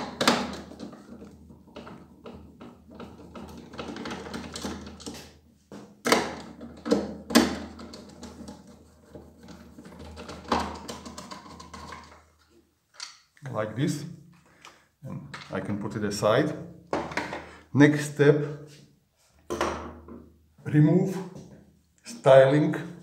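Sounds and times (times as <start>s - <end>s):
plastic clicks and knocks: 0.0s - 13.2s.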